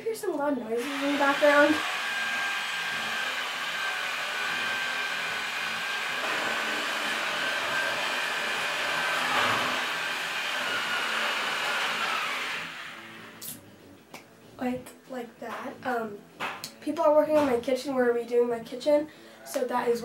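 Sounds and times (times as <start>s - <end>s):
electric machine whining: 0.8s - 13.6s.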